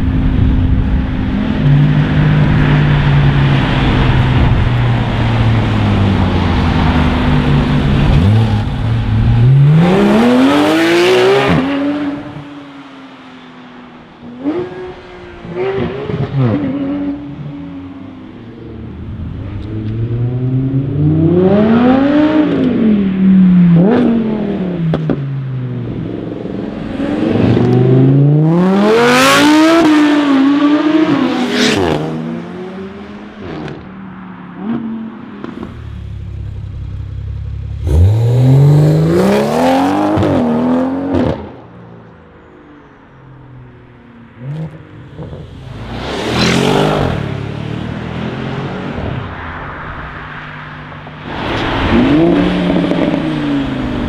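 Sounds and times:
car engine revving: 0.0s - 12.6s, 25.9s - 33.9s, 34.6s - 41.6s, 44.4s - 54.0s
sports cars accelerating hard: 0.9s - 12.7s, 14.2s - 25.3s, 25.9s - 33.9s, 37.7s - 41.6s, 44.4s - 54.0s.

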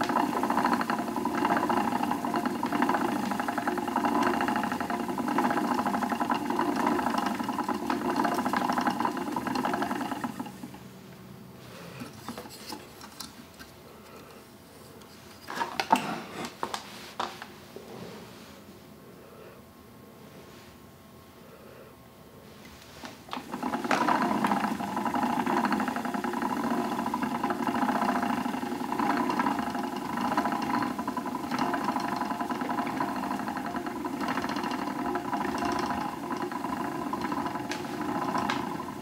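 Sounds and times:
spinning wheel whirring and clattering: 0.0s - 10.9s, 23.3s - 39.0s.

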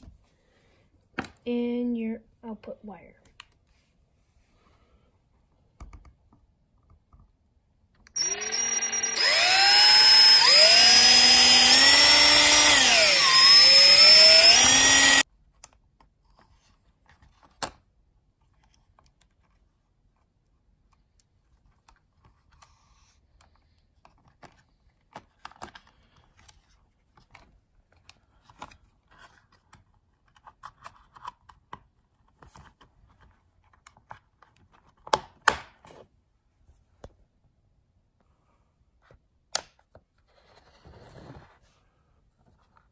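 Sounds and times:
power drill boring into plastic: 8.2s - 15.2s.

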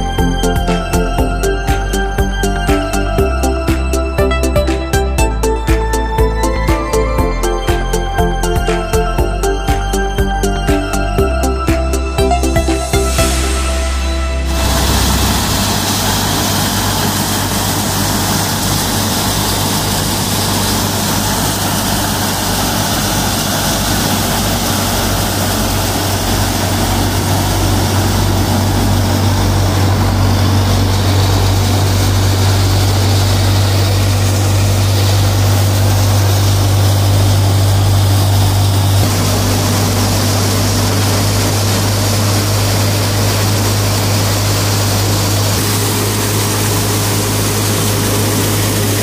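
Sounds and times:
tractor diesel engine running: 0.0s - 49.0s
thresher whirring and rushing: 12.3s - 49.0s.

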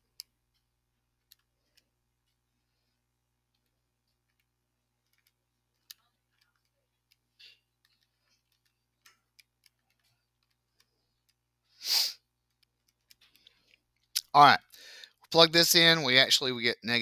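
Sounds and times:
short burst of hiss: 11.8s - 12.2s.

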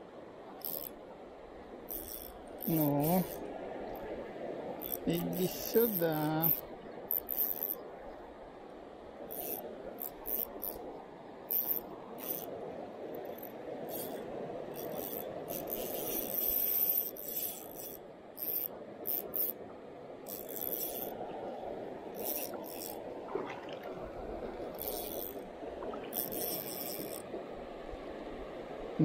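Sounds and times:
river water rushing: 21.1s - 29.0s.

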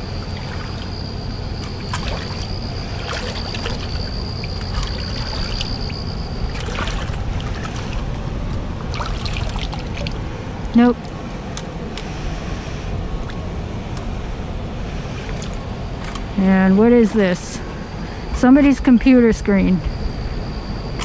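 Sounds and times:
water sloshing around legs: 0.0s - 10.2s
flowing river water: 0.0s - 11.1s
thin high whine: 0.0s - 21.0s.

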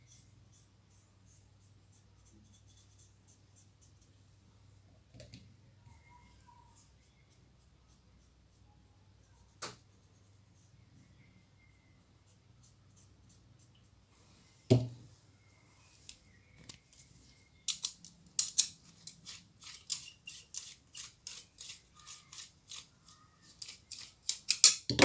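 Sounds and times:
metallic clicks and ticks: 17.7s - 19.2s, 23.6s - 24.9s.

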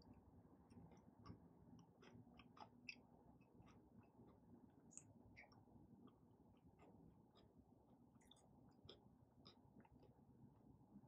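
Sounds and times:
closed-mouth chewing: 0.7s - 6.2s.

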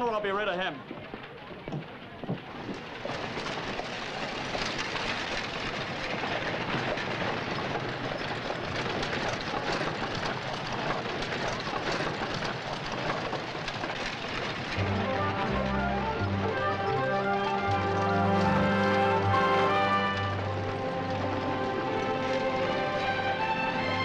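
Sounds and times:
hooves clopping: 0.0s - 24.0s
wooden wheels and harness rattling: 0.0s - 24.0s
music: 14.8s - 24.0s.

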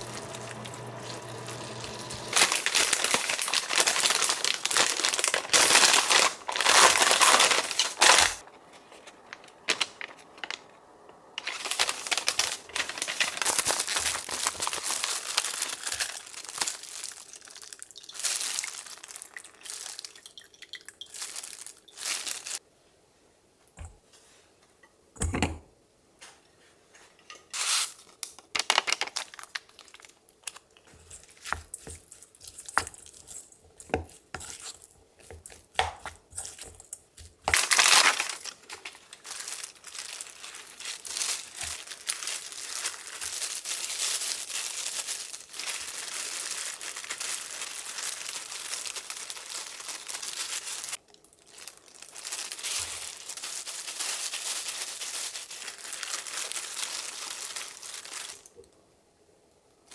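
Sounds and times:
kitchen handling clicks and knocks: 25.2s - 25.7s.

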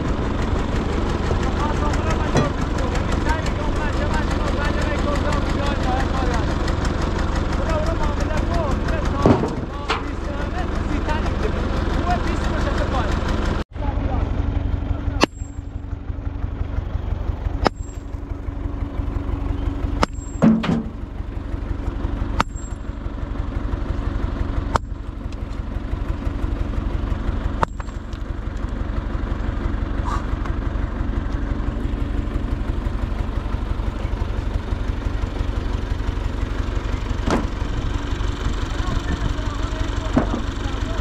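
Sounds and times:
tractor engine idling: 0.0s - 41.0s.

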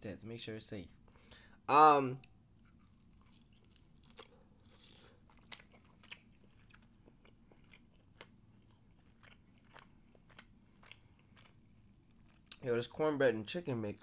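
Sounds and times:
close-up chewing with wet mouth clicks: 2.2s - 12.6s.

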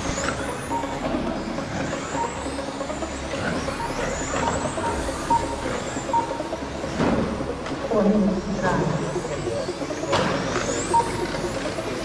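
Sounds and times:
echoing hall noise: 0.0s - 12.0s
short beeps: 3.8s - 6.6s.

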